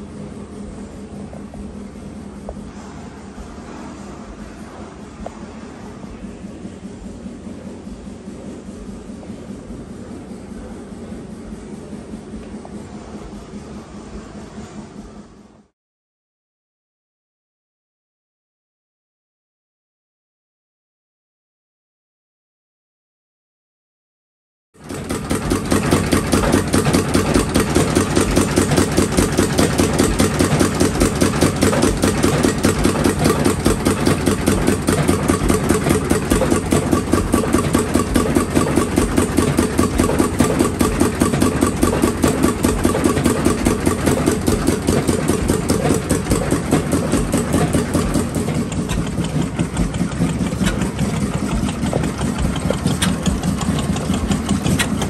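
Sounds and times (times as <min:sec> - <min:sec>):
old stationary engine running: 0:00.0 - 0:15.7, 0:24.8 - 0:55.0.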